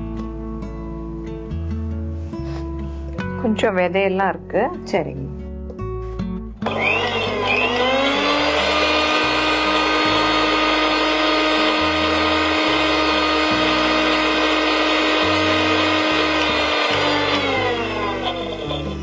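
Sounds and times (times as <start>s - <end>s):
mixer grinder motor whining: 6.6s - 19.0s.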